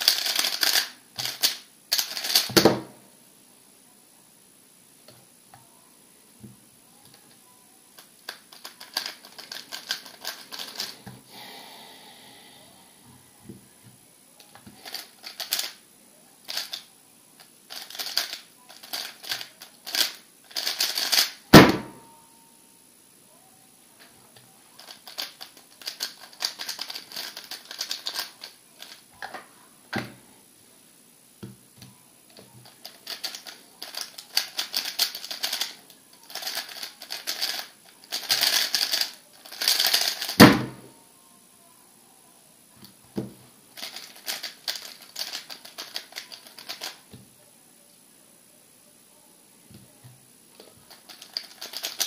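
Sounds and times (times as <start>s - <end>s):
puzzle cube layers clacking: 8.2s - 11.0s, 32.8s - 35.7s, 50.9s - 52.0s.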